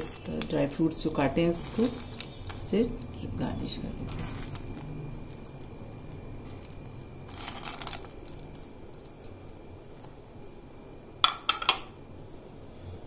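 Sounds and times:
nut slivers rustling: 0:00.0 - 0:10.2.

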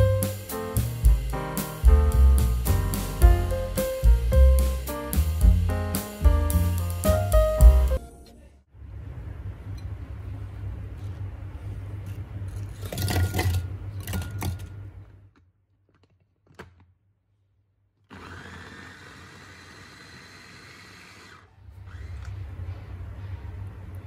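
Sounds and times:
food chopper motor running: 0:18.1 - 0:22.4.

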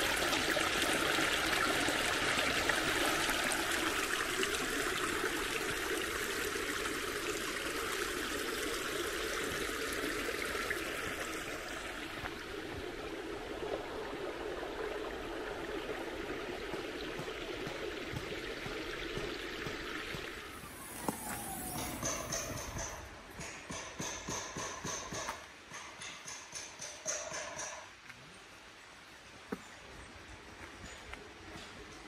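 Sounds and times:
stream trickling over stones: 0:00.0 - 0:23.1.

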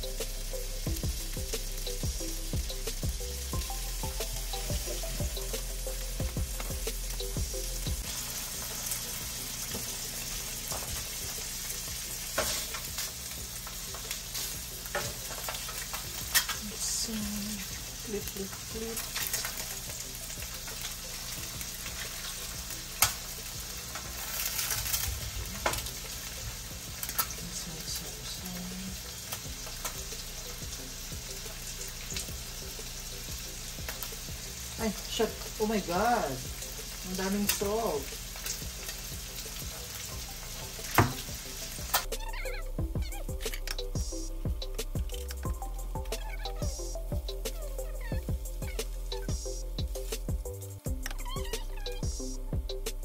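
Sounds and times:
food sizzling in a pan: 0:00.0 - 0:53.0
utensil clicking against pan: 0:43.4 - 0:43.9.

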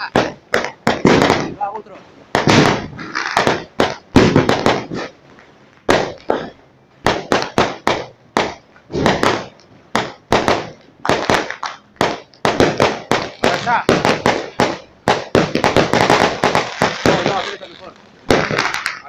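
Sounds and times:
fireworks banging: 0:00.0 - 0:19.0.

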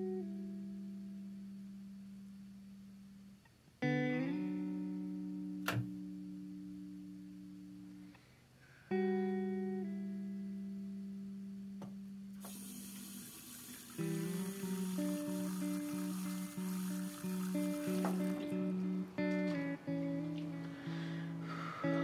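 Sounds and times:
guitar chords ringing: 0:03.8 - 0:07.9, 0:08.9 - 0:22.0
tap running into sink: 0:12.4 - 0:18.6.

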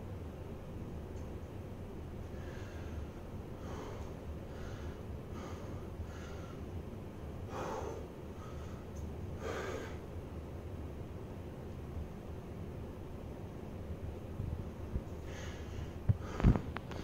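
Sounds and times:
man breathing hard: 0:02.3 - 0:06.7, 0:07.5 - 0:10.1, 0:15.2 - 0:17.0.

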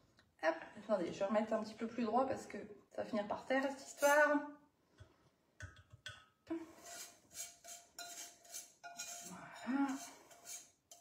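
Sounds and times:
spatula scraping saucepan: 0:03.2 - 0:04.6, 0:06.7 - 0:11.0.

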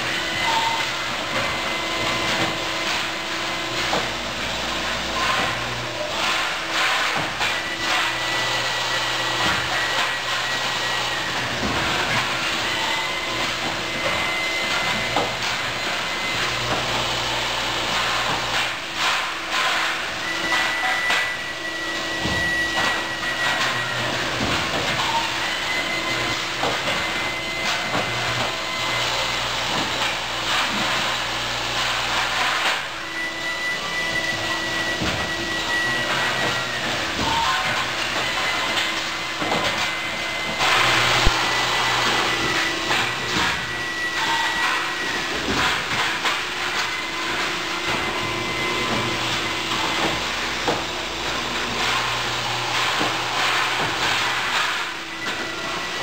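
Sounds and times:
machinery hiss and hum: 0:00.0 - 0:56.0
thin high whine: 0:00.0 - 0:56.0.

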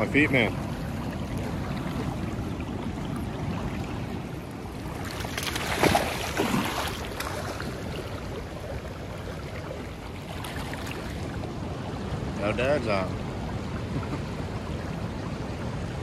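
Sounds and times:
river current rushing: 0:00.0 - 0:16.0
fish thrashing and splashing: 0:04.9 - 0:08.1.

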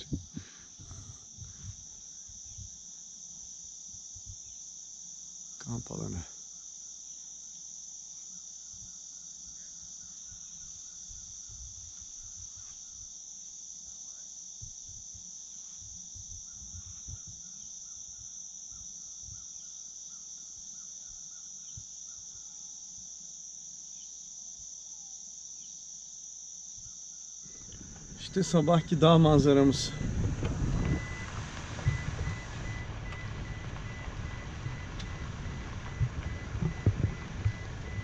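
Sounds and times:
insects chorus: 0:00.0 - 0:38.0
soft low thumps: 0:27.5 - 0:38.0.

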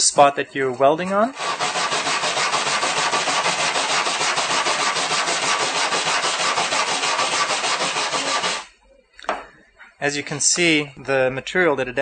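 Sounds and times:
wire brush scrubbing metal: 0:00.8 - 0:08.7.

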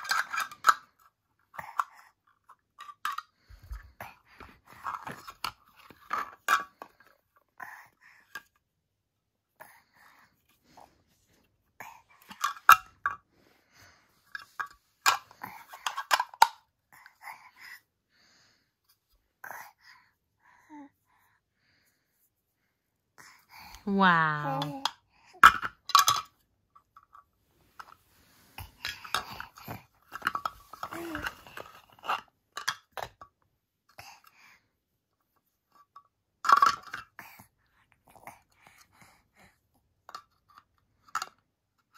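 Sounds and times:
toy pieces clicking and clacking: 0:00.0 - 0:03.7, 0:14.3 - 0:16.6, 0:28.6 - 0:33.2, 0:36.4 - 0:37.1.

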